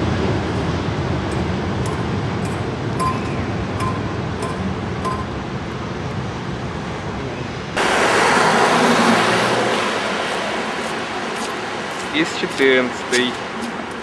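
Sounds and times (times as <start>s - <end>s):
street traffic: 0.0s - 14.0s
train rumbling on track: 0.0s - 14.0s
bus engine pulling away: 5.6s - 14.0s.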